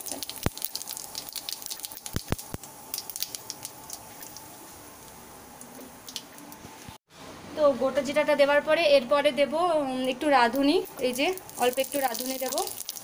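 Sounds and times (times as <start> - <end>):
spices crackling in hot oil: 0.0 - 7.0, 10.1 - 13.0.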